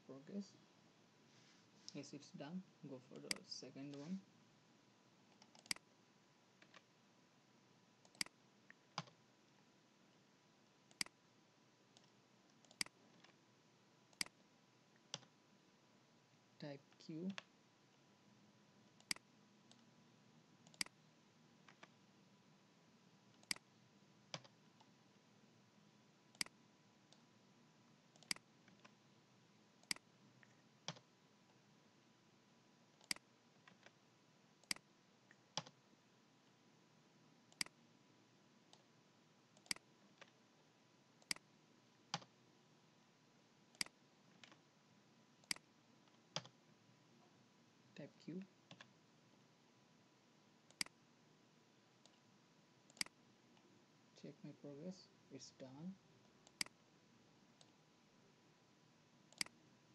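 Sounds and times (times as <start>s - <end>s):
faint steady hiss: 0.0s - 59.9s
computer mouse clicks: 5.3s - 5.9s, 6.6s - 6.9s, 8.0s - 9.2s, 10.9s - 11.2s, 12.0s - 13.4s, 14.1s - 14.4s, 15.0s - 15.3s, 18.9s - 19.9s, 20.6s - 21.0s, 23.3s - 23.7s, 26.3s - 27.3s, 28.1s - 29.0s, 29.8s - 31.1s, 33.0s - 34.0s, 34.6s - 35.8s, 37.5s - 37.8s, 39.6s - 40.4s, 41.2s - 41.5s, 42.1s - 42.3s, 43.7s - 44.6s, 45.4s - 46.6s, 50.7s - 51.0s, 52.9s - 53.7s, 56.2s - 56.8s, 59.3s - 59.6s.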